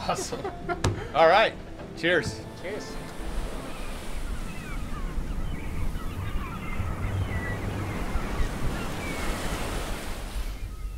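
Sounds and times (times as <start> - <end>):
seabirds crying: 0.0 - 10.9
surf: 0.0 - 10.9
wind on microphone: 3.0 - 10.9.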